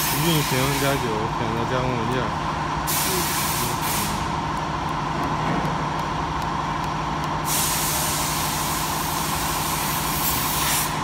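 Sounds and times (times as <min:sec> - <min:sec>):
loud hiss: 0:00.0 - 0:01.2, 0:02.9 - 0:04.2, 0:07.5 - 0:11.0
machinery hum: 0:00.0 - 0:11.0.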